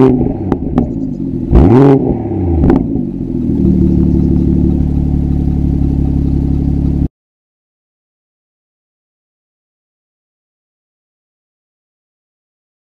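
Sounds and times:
car engine revving and idling: 0.0 - 7.1
exhaust pop: 0.0 - 7.1.

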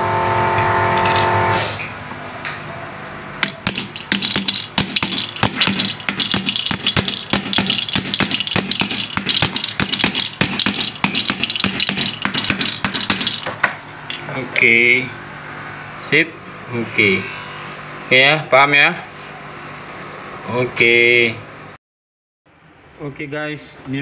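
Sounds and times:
small hammer tapping brass: 3.4 - 13.7.

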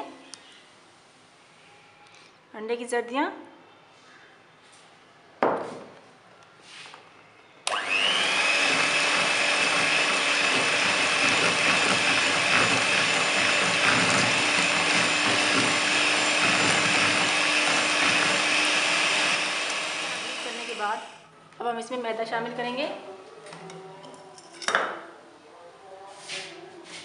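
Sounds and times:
electric hand mixer whining: 7.7 - 21.2.

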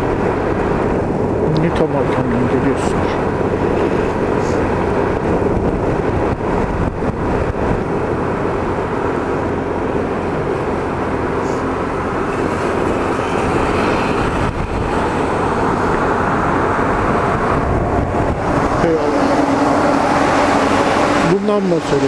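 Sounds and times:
scooter engine drone: 0.0 - 22.0
wind noise: 0.0 - 22.0.

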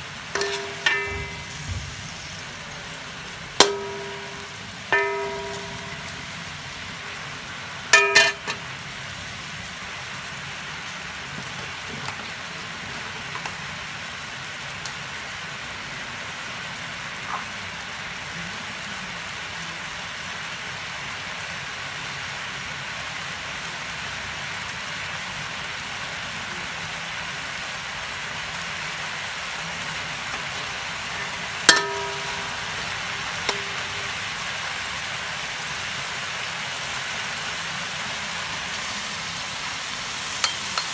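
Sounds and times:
food sizzling in hot oil: 0.0 - 40.9
metal spatula clanging on wok: 0.4 - 2.0, 3.6 - 6.5, 7.9 - 8.7, 30.3 - 34.3, 40.4 - 40.9.

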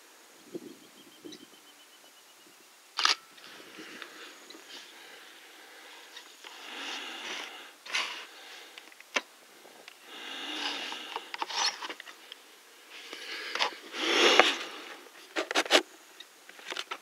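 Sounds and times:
breathy rustling at microphone: 3.4 - 15.8.

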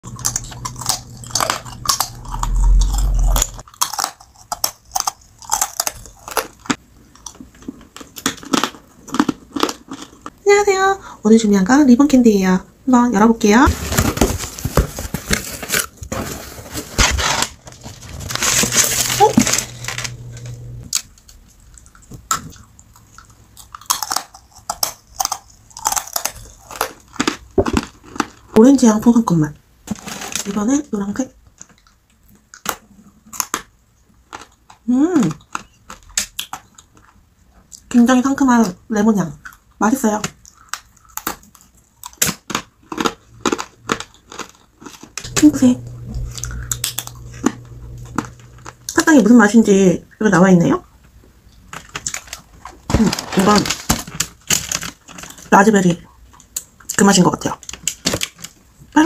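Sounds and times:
low rumble: 0.0 - 3.6, 17.7 - 20.9, 45.3 - 49.3
hard candy crunching: 0.0 - 10.4, 14.0 - 28.6, 31.6 - 37.9, 39.4 - 49.6, 51.5 - 58.9.

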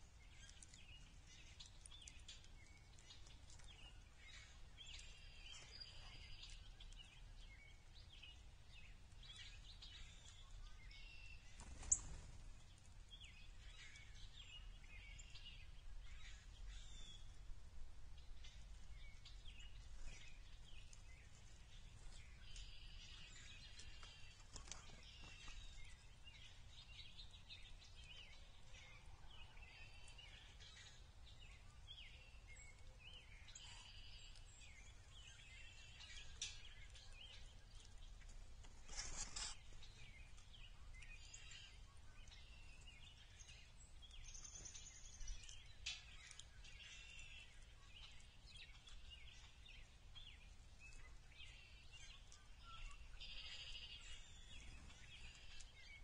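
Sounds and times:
songbird calls and song: 0.0 - 56.0.

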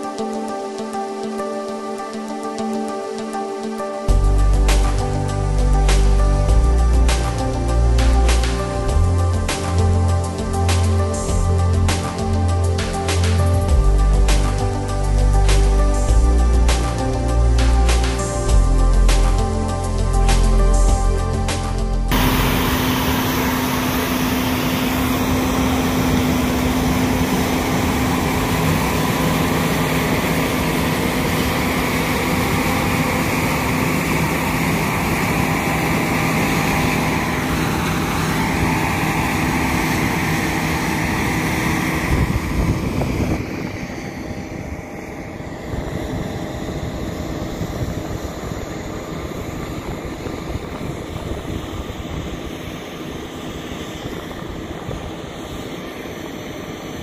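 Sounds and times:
combine harvester drone: 0.0 - 57.0
machine hiss: 22.1 - 42.4.

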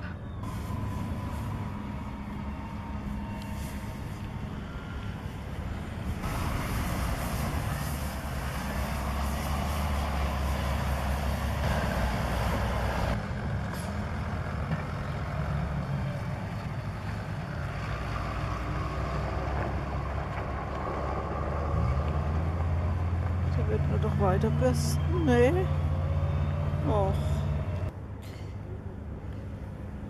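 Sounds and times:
diesel engine running: 0.0 - 27.9
hiss: 6.2 - 11.6.

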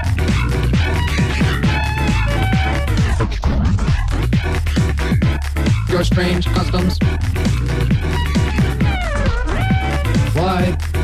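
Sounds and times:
steady low bass: 0.0 - 11.0
drum hits falling in pitch: 7.0 - 10.4.

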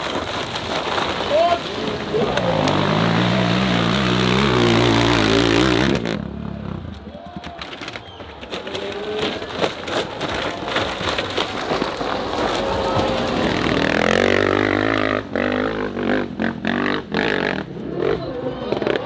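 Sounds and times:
dirt bike engine revving: 2.1 - 6.9, 13.0 - 19.0
knocks and clatter: 7.2 - 15.1.

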